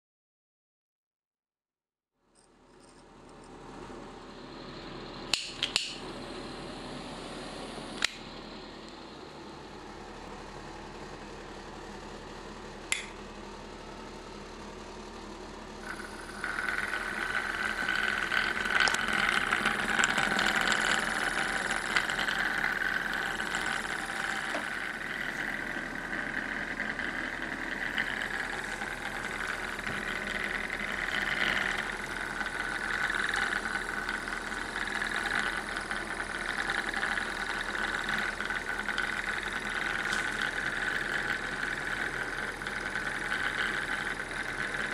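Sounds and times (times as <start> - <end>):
engine rattling hum: 14.3 - 44.9.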